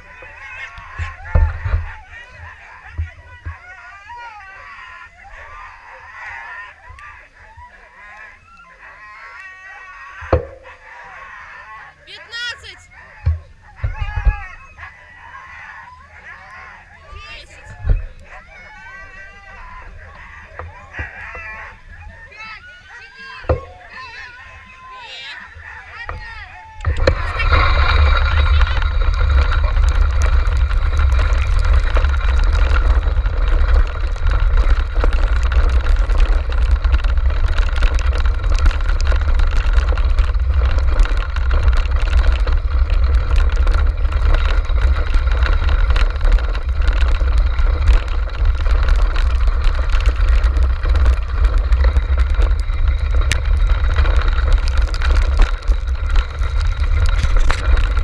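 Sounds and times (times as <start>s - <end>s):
cart rumbling over dirt trail: 0.0s - 58.0s
rattles and clicks from wheels: 0.0s - 58.0s
wind buffeting microphone: 12.9s - 58.0s.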